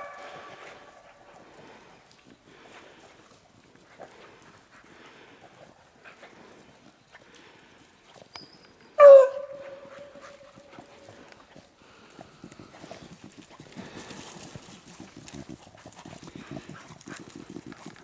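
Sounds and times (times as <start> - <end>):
dog baying: 0.0 - 1.4, 9.0 - 11.3
paws pattering through wet leaves: 0.0 - 5.4, 9.2 - 17.8.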